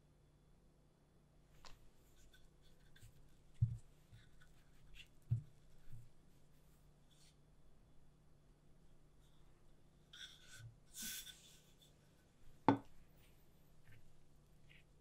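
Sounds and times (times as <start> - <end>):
hands rustling dough: 1.5 - 7.4, 10.9 - 15.0.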